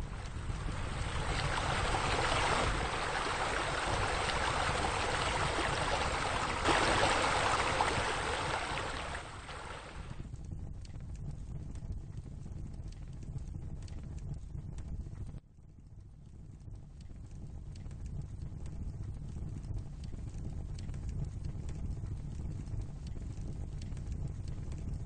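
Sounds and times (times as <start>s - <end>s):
water rushing and splashing: 0.0s - 10.2s.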